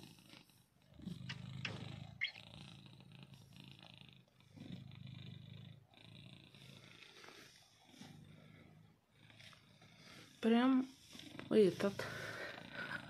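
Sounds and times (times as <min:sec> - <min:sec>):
cat purring: 0:00.0 - 0:13.0.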